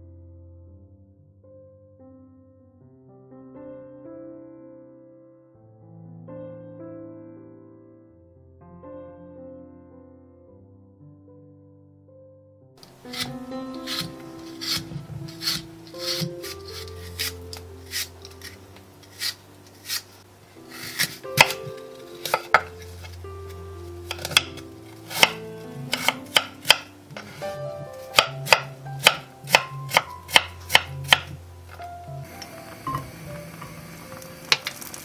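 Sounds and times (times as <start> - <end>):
apple being peeled: 12.8 - 35.0.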